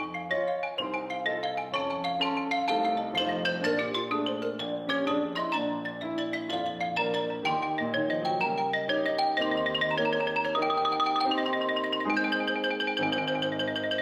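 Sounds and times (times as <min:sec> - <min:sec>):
grand piano accompaniment: 0:00.0 - 0:14.0.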